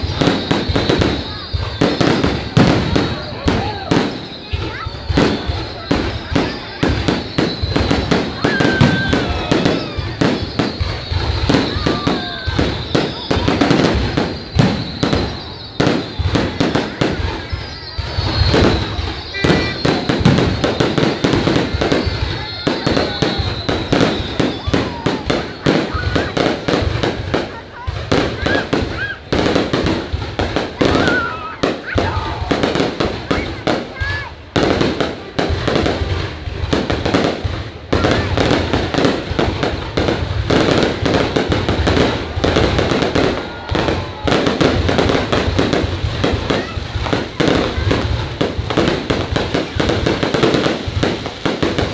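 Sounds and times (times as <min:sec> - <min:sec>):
high thin whistle: 0:00.0 - 0:21.3
fireworks bangs and pops: 0:00.0 - 0:51.9.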